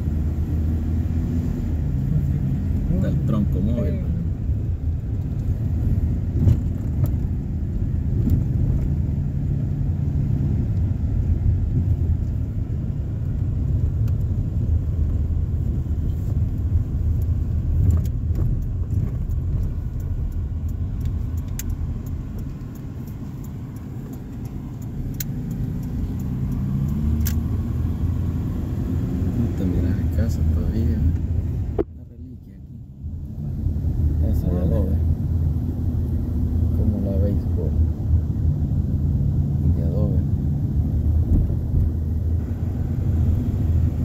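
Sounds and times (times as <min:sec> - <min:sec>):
car engine and road noise: 0:00.0 - 0:44.0
faint clicks: 0:17.1 - 0:27.4.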